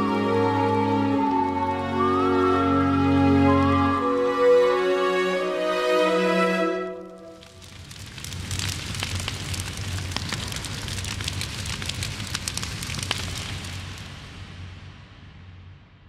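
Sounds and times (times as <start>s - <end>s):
fire crackling: 7.0s - 15.8s.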